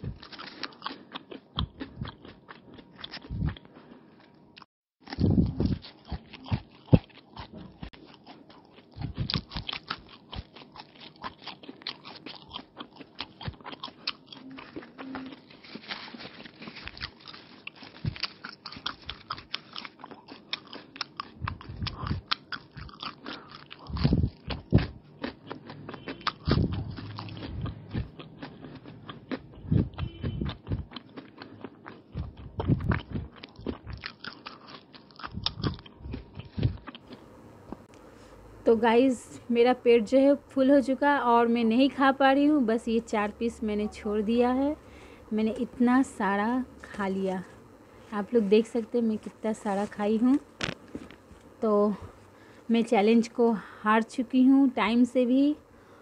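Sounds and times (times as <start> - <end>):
person chewing and crunching: 0.0 - 37.4, 49.1 - 51.6.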